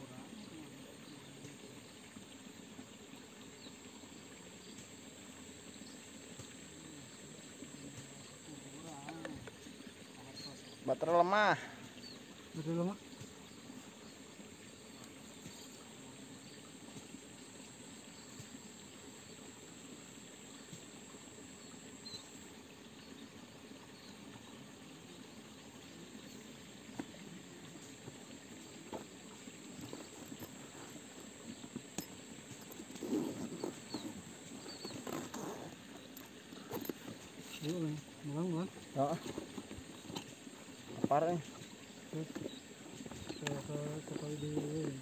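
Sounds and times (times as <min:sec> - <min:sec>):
water trickling in stream: 0:00.0 - 0:45.0
rustling in vegetation: 0:24.4 - 0:45.0.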